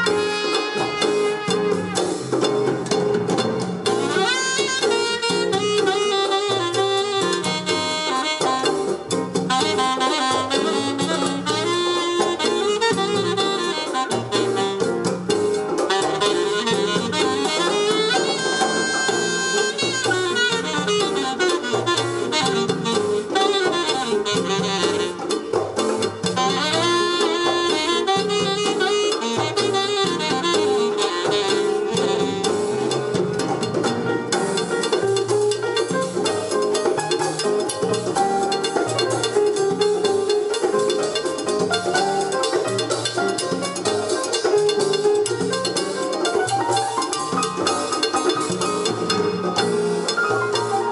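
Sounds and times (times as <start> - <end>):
music through loudspeakers: 0.0 - 6.9
jazz saxophone over bass line: 0.0 - 50.9.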